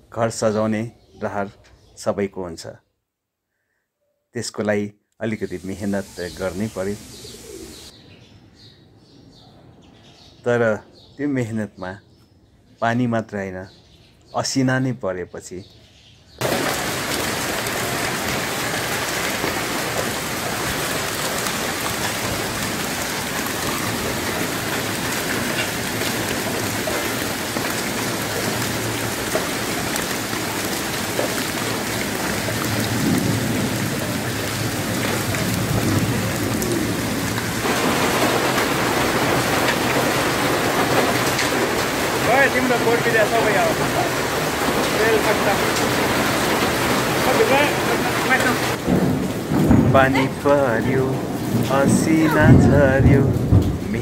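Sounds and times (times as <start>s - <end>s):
heavy rain and hail pelting pavement: 16.4s - 54.0s.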